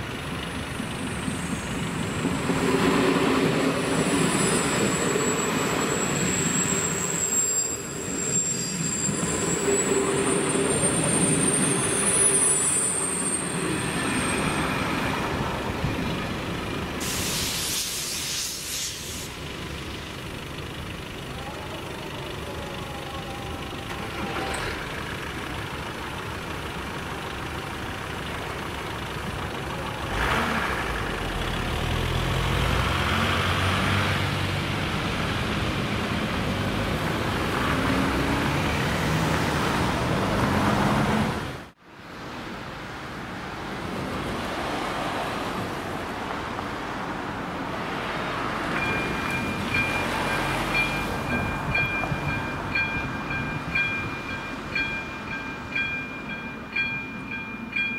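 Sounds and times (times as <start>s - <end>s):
cars driving over tracks: 0.0s - 57.9s
crossing warning bell ringing: 0.8s - 16.9s, 48.6s - 57.9s.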